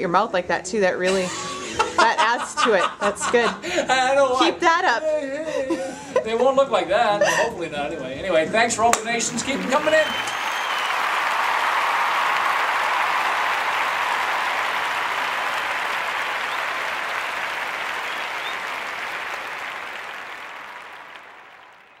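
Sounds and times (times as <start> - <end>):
crowd applauding: 8.9 - 22.0.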